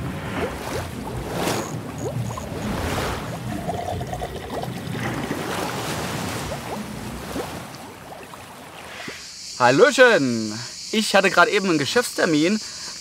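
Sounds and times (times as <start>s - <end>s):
underwater bubbling and trickling: 0.0s - 9.3s
rising bubble pops: 1.6s - 5.6s.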